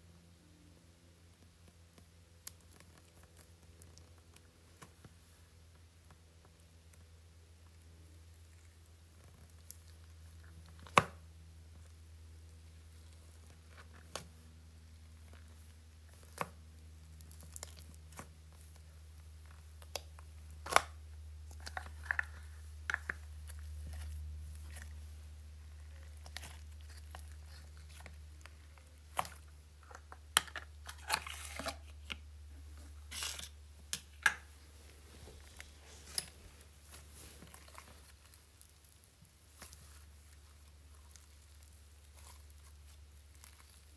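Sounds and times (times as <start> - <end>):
low steady hum: 0.0 - 43.9
slime crackling: 6.6 - 32.0, 35.0 - 43.9.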